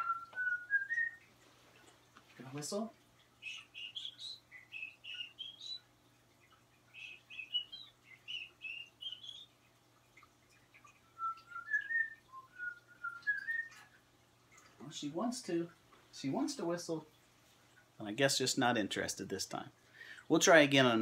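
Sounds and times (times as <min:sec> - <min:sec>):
man whistling: 0:00.0 - 0:01.2.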